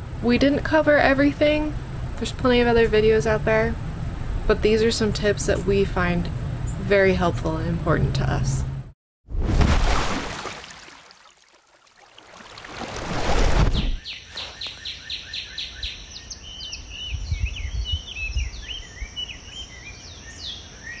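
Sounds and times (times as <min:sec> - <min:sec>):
birds chirping: 0:13.8 - 0:21.0.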